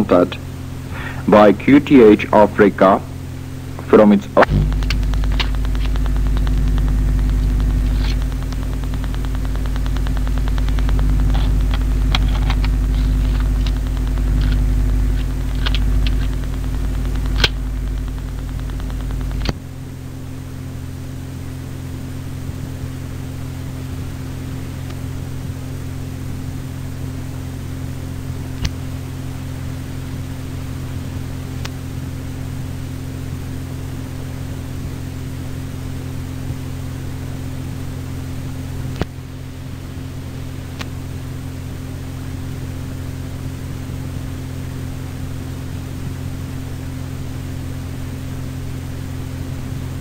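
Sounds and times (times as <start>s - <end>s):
steady hiss and mains hum: 0.0s - 50.0s
heavier low hum: 0.3s - 22.7s
scattered clicks: 3.8s - 19.6s.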